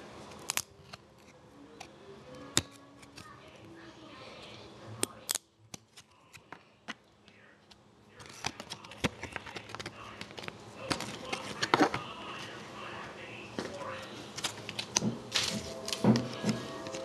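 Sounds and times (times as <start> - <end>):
cards clicking: 8.2 - 12.1, 14.4 - 17.0.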